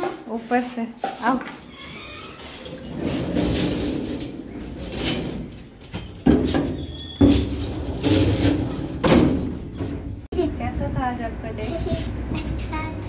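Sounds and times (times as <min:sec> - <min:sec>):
elevator doors sliding: 0:01.6 - 0:10.3.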